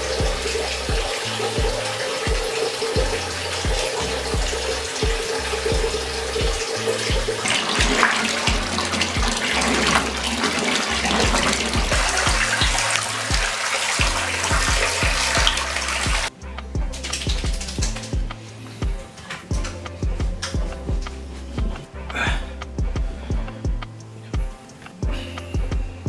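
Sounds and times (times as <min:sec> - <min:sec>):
water running from bath tap: 0:00.0 - 0:16.3, 0:16.9 - 0:18.4
background music with bass beat: 0:00.0 - 0:26.0.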